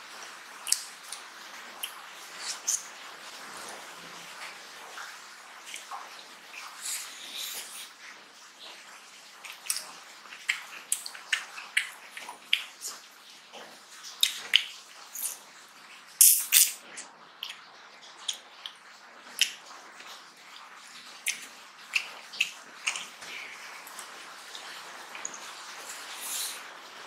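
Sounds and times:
man chewing and lip-smacking: 0.6 - 2.9, 20.6 - 24.1.

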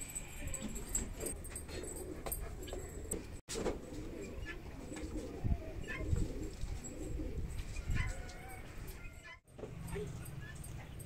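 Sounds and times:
pigeons cooing: 0.6 - 9.4.

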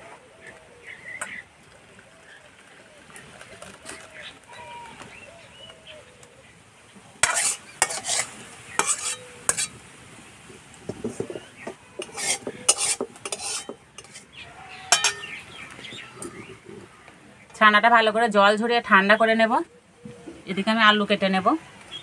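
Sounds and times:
metal pot and bowl clinking: 7.2 - 9.8, 12.0 - 15.4.

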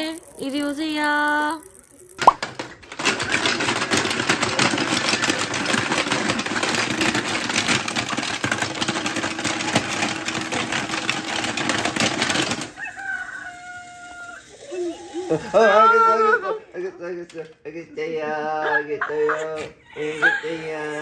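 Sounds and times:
plastic toy rattling: 0.0 - 15.7.

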